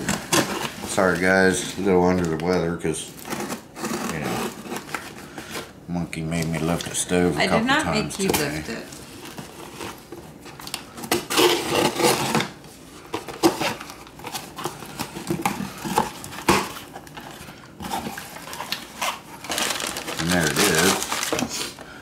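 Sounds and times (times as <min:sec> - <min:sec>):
knife slitting packing tape: 0:11.0 - 0:12.4.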